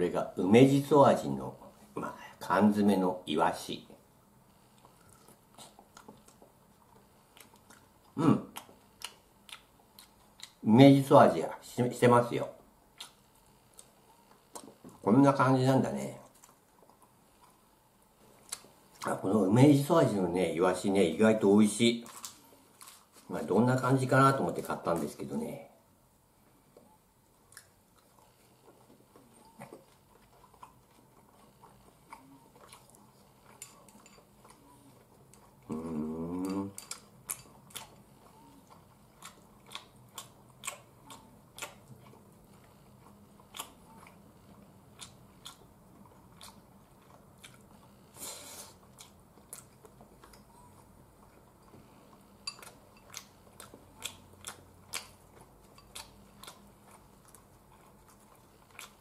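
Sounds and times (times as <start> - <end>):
soft chewing: 3.5 - 59.0
person humming: 35.7 - 36.8.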